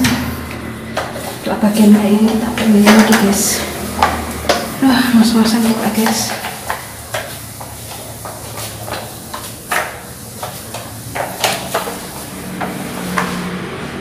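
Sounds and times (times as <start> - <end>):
mop knocking on stair steps: 0.0 - 13.6.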